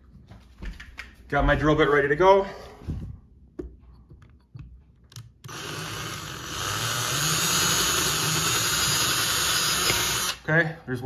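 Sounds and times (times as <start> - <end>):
power drill boring into wall: 5.5 - 10.4.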